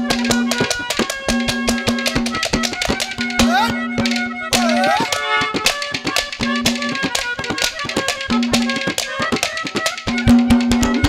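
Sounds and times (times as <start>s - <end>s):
harmonium chords: 2.1s - 9.3s.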